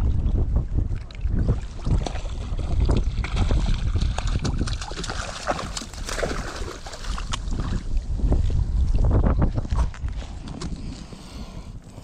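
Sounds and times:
low wind rumble: 0.0 - 12.0
water splashing: 0.9 - 8.2
fish thrashing in a net: 1.8 - 7.4.

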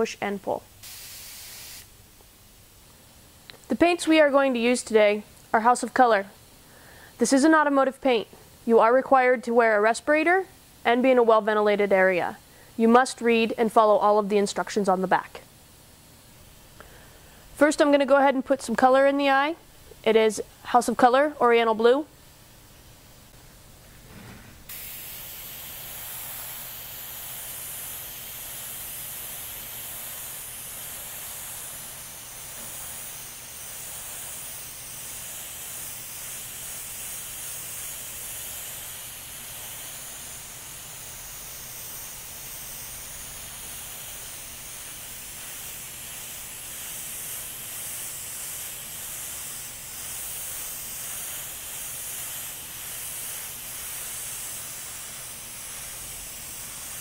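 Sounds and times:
airbrush spraying hiss: 0.8 - 2.0, 24.7 - 57.0.

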